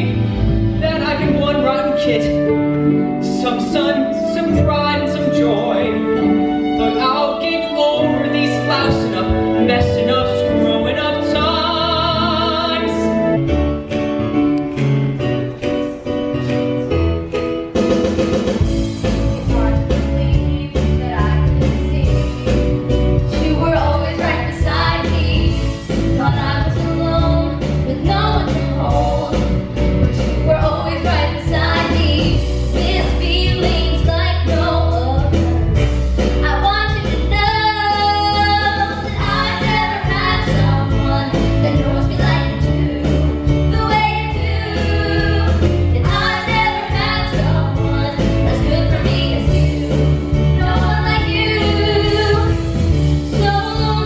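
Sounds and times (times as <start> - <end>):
music with beat and bass: 13.1 - 54.0
women singing a duet: 19.4 - 22.4, 23.3 - 29.5, 30.1 - 35.6, 36.4 - 54.0.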